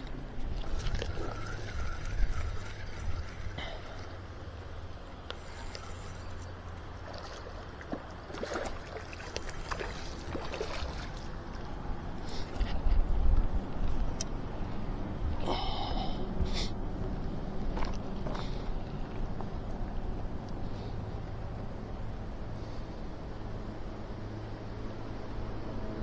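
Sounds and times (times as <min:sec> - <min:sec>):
water splashing and gurgling: 0:00.0 - 0:14.2
steady low rumble: 0:00.0 - 0:26.0.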